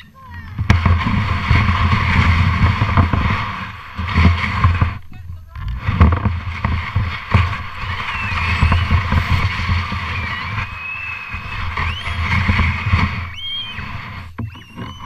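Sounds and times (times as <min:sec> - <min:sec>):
sled scraping over snow: 0:00.0 - 0:15.0
sled bumping knocks: 0:00.5 - 0:15.0
high squeaky gliding tones: 0:07.2 - 0:15.0.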